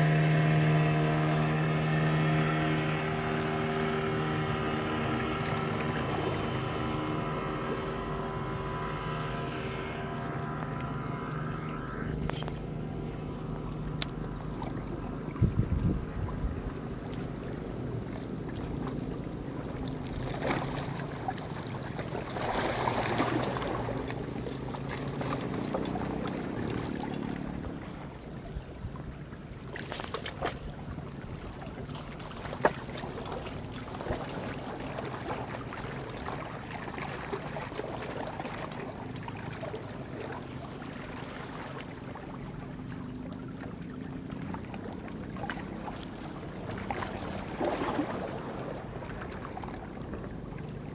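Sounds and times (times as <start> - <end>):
boat engine droning: 0.0 - 50.9
wind on microphone: 15.3 - 16.8.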